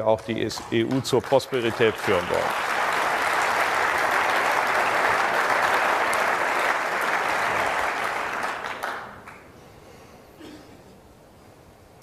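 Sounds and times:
audience applause: 0.2s - 9.5s.

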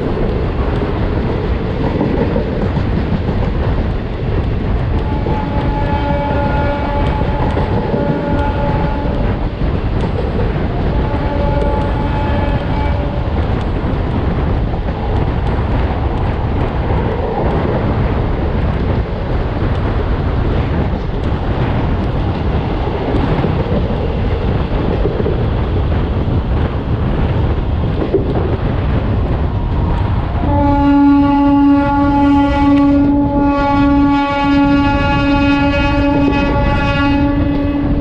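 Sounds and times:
train wheels rumbling on rails: 0.0s - 38.0s
wind buffeting: 0.0s - 38.0s
train horn: 5.0s - 9.4s, 10.8s - 13.3s, 30.4s - 38.0s.

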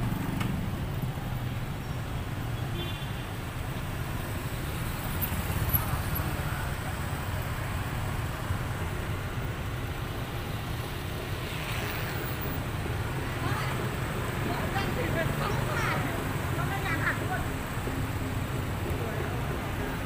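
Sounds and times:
road traffic rumble: 0.0s - 20.0s.

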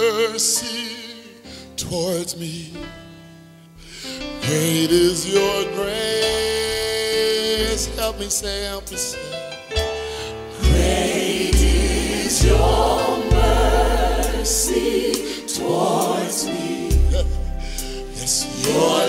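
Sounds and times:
gospel choir singing: 4.4s - 8.4s, 10.1s - 19.0s
deep bass line: 10.6s - 15.4s, 16.9s - 18.5s.

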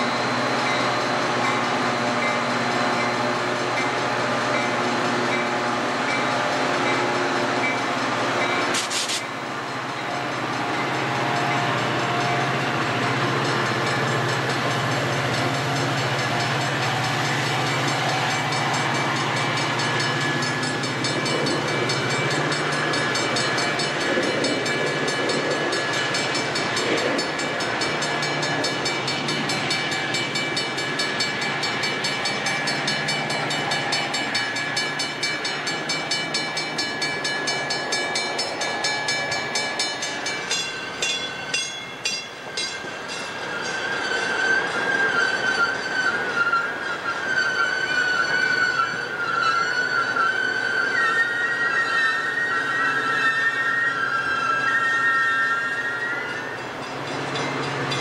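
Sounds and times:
diesel locomotive engine running: 0.0s - 45.0s, 55.6s - 58.0s
train wheels clattering over rail joints: 0.2s - 45.2s.

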